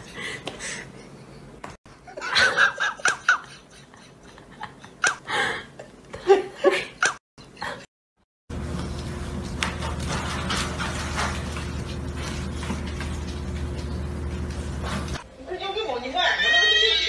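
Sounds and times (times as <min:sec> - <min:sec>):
people giggling: 0:02.0 - 0:05.2.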